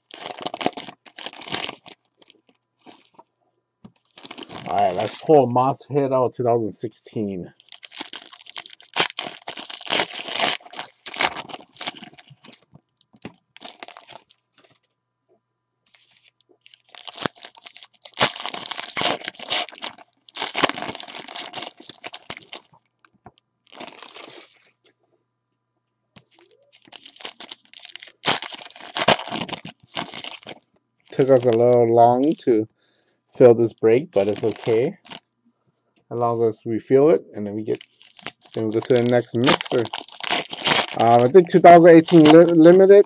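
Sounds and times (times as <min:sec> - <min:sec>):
foil wrapper tearing and crinkling: 0:00.0 - 0:03.2, 0:04.0 - 0:05.4, 0:07.5 - 0:14.8, 0:15.9 - 0:24.8, 0:26.2 - 0:32.4, 0:33.5 - 0:35.3, 0:37.6 - 0:43.0.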